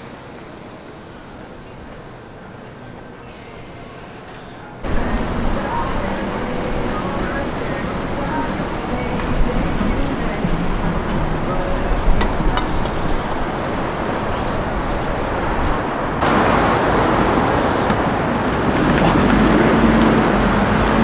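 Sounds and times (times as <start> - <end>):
passing cars and buses: 0.0 - 21.0.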